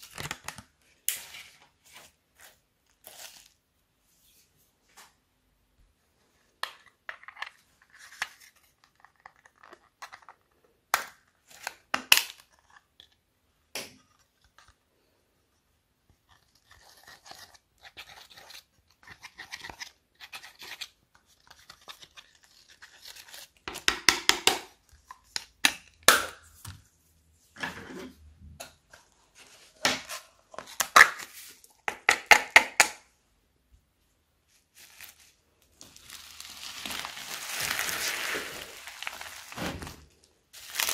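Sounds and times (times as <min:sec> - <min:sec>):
crunchy slime crackling: 0:35.8 - 0:40.9.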